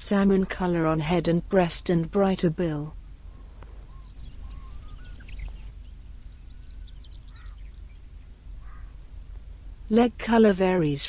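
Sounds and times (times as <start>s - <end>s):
low background rumble: 0.0s - 11.0s
small birds chirping and whistling: 3.3s - 9.0s.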